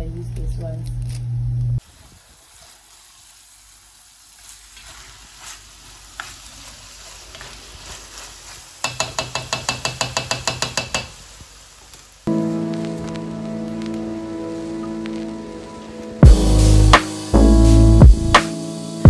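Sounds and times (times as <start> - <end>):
meat sizzling in a pan: 1.8 - 15.7
spoon stirring and scraping: 4.4 - 11.1.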